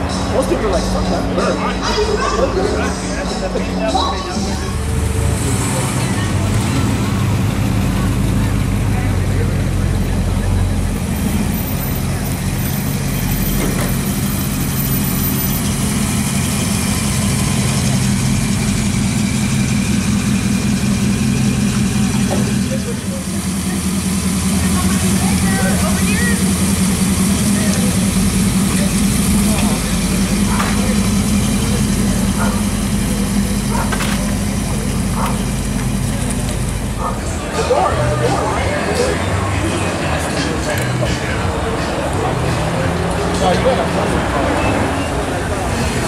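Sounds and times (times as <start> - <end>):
car engine idling: 0.0 - 46.0.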